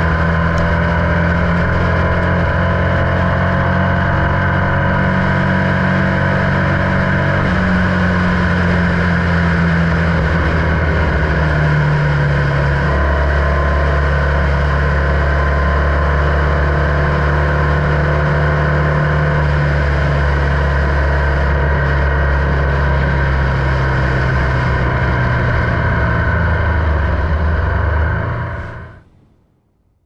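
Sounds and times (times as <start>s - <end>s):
engine running steadily: 0.0s - 29.4s.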